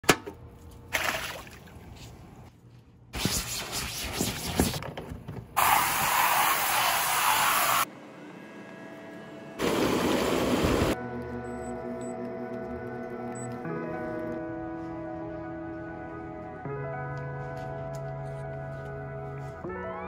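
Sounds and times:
stiff brush scrubbing vinyl: 3.2 - 4.8
hissing water spray: 5.6 - 7.9.

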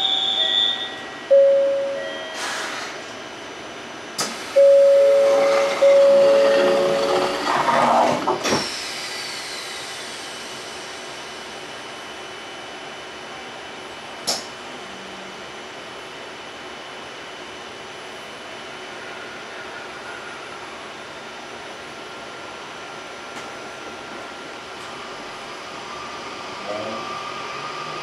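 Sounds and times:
electronic door chime: 0.0 - 2.4, 4.6 - 7.4
train door shutting: 0.0 - 3.2, 4.1 - 9.2
steady hiss from train: 2.4 - 3.1.

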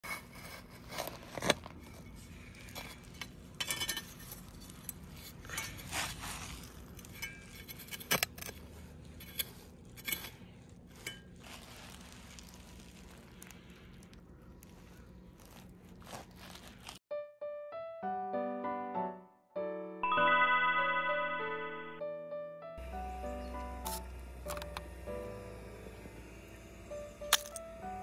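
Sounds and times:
trowel scraping soil: 0.0 - 13.8, 14.6 - 17.0.

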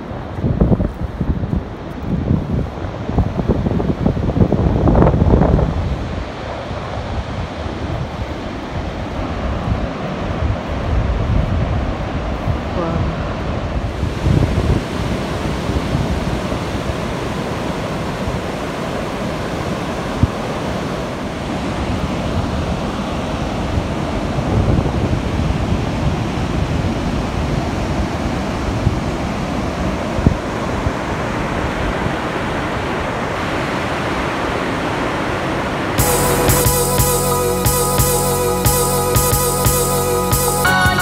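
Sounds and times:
wind buffeting microphone: 0.0 - 32.9
surf breaking on a beach: 0.0 - 36.0.

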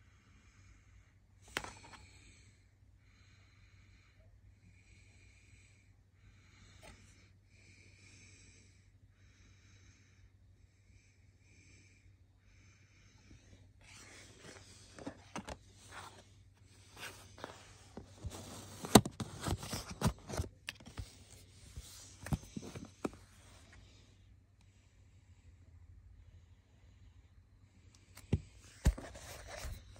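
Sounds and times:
faint breathing: 0.0 - 29.9
cd case rustling and clicking: 1.5 - 2.0, 13.9 - 16.2, 16.8 - 23.3, 28.2 - 29.8.

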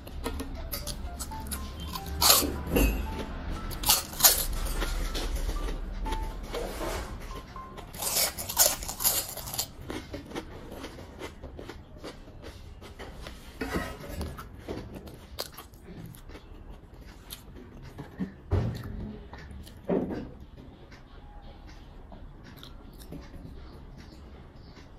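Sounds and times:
chewing and mouth clicks: 0.0 - 6.2, 7.3 - 24.9
crisp chip crunches: 0.8 - 2.5, 3.7 - 5.0, 7.9 - 11.4.

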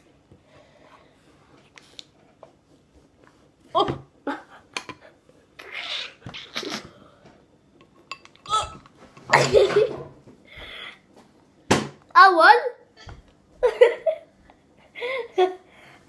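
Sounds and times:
girls gagging and coughing: 9.3 - 10.0.

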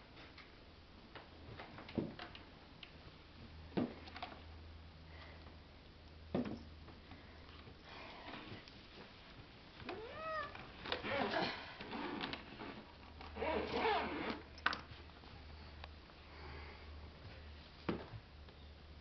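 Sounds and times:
kitten crying: 9.9 - 10.6
zipper pulled closed: 10.9 - 14.6.

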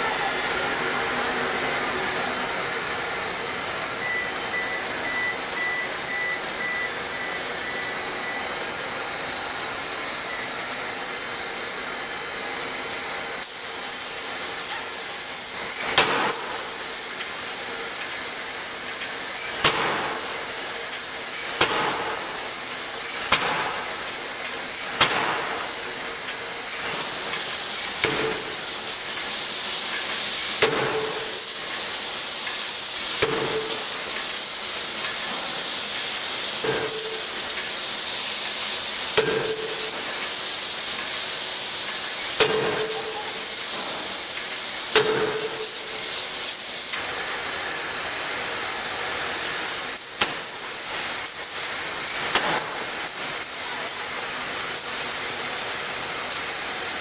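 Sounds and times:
steady hiss: 0.0 - 57.0
forging hammer striking steel: 15.7 - 16.7, 19.4 - 20.4, 21.4 - 22.4, 24.8 - 25.6, 30.6 - 31.4, 33.2 - 33.9, 39.2 - 40.2, 42.4 - 44.0, 44.9 - 46.1.

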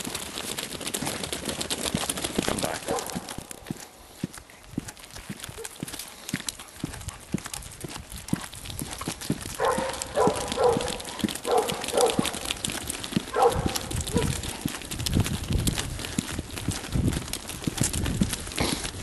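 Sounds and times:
hooves clicking on wet asphalt: 0.0 - 19.0
dog barking: 2.8 - 3.4, 5.6 - 5.8, 9.6 - 12.5, 13.3 - 14.4.

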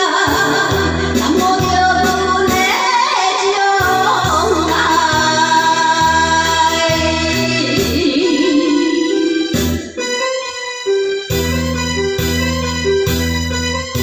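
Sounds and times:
woman singing into a microphone: 0.0 - 10.1
karaoke backing track: 0.0 - 14.0.

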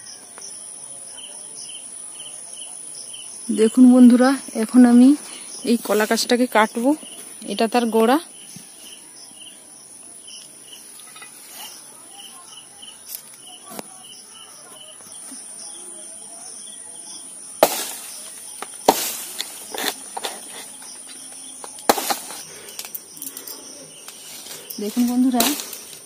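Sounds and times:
insects chirping: 0.0 - 26.0
machete chopping plant: 17.6 - 22.9, 24.9 - 26.0.

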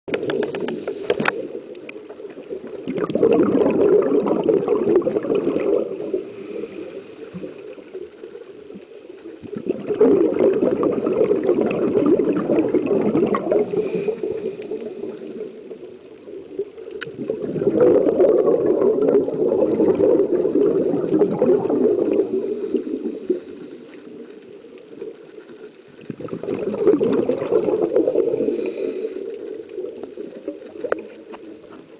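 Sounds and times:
exhaled bubbles underwater: 0.1 - 31.9
regulator inhalation hiss: 0.7 - 1.7, 5.8 - 8.4, 13.5 - 15.9, 21.9 - 24.7, 28.0 - 29.6.

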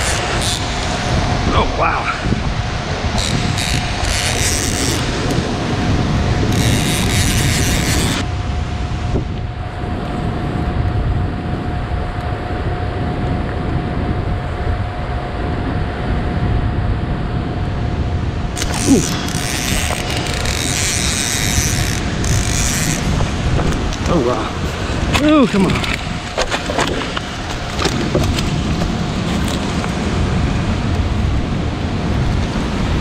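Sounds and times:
wind and current rushing: 0.0 - 33.0
fishing reel ratcheting: 3.2 - 5.1, 6.5 - 8.2, 18.6 - 23.2.

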